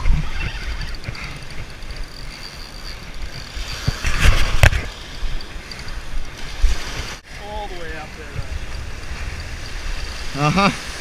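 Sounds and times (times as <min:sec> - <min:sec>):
wind buffeting microphone: 0:00.0 - 0:10.4
surf waves washing onto sand: 0:03.6 - 0:11.0.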